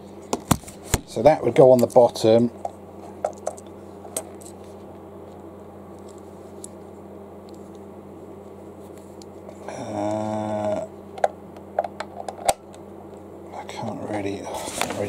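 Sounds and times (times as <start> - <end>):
low background hum: 0.0 - 15.0
man humming briefly: 9.6 - 11.0.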